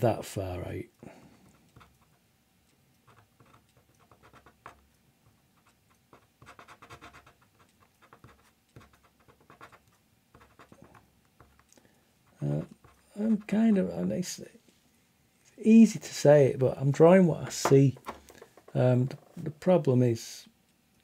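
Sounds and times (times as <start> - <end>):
pen scratching on paper: 3.0 - 11.6, 12.3 - 13.5.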